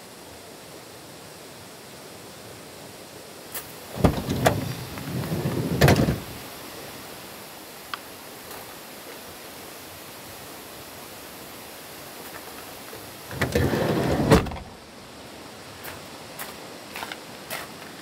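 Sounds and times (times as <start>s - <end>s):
steady outdoor hiss: 0.0s - 18.0s
van door shutting with a bang: 3.9s - 6.4s, 13.4s - 14.7s.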